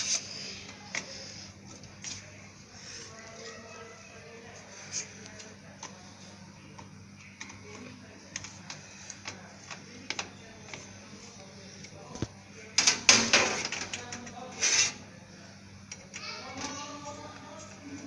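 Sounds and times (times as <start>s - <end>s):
rustling scrape: 14.5s - 15.0s.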